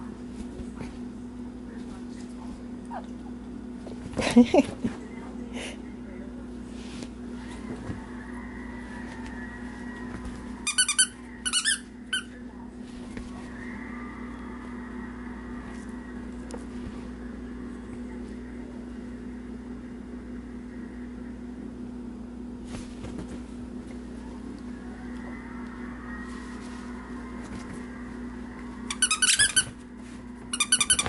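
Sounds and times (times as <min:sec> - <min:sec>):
steady low hum: 0:00.0 - 0:31.0
pet toy squeaks: 0:28.9 - 0:29.7, 0:30.5 - 0:31.0.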